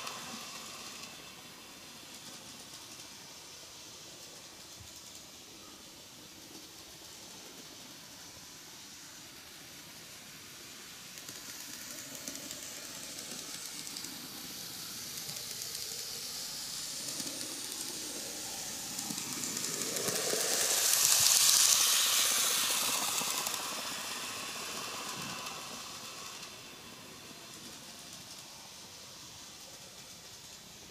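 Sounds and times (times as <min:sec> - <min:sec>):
model train motor whir: 0:00.0 - 0:30.9
small wheels rattling on rails: 0:10.2 - 0:30.9.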